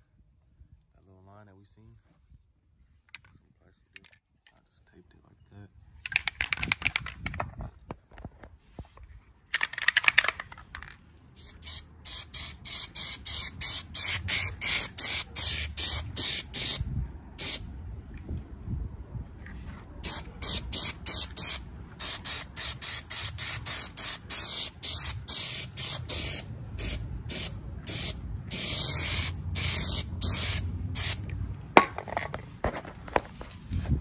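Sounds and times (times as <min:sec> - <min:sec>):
spray paint can bursts: 0:11.4 - 0:16.8, 0:17.4 - 0:17.6, 0:20.0 - 0:32.0.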